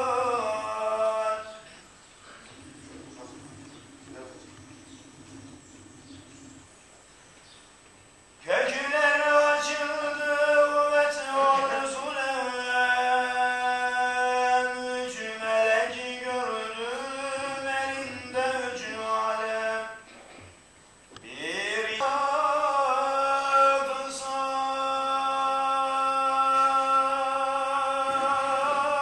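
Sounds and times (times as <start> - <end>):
man chanting religious recitation: 0.0 - 1.8, 8.4 - 20.1, 21.2 - 29.0.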